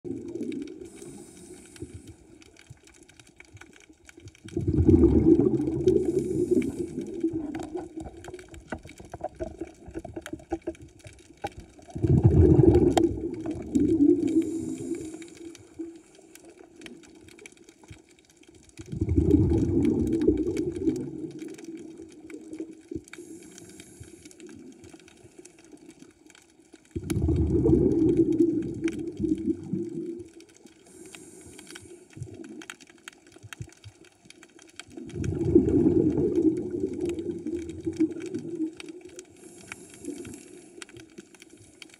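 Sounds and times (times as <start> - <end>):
exhaled air bubbling: 0.0 - 41.9
regulator inhale hiss: 0.8 - 2.4, 6.0 - 7.4, 14.0 - 16.6, 23.2 - 25.5, 30.8 - 32.4, 39.3 - 40.9.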